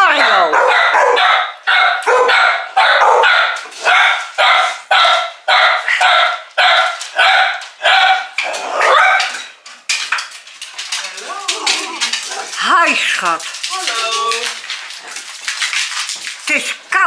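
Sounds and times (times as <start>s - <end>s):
dogs barking: 0.0s - 9.5s.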